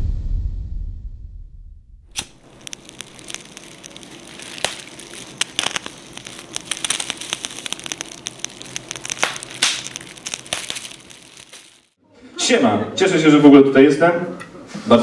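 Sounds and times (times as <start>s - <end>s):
fire crackling: 2.1s - 12.0s.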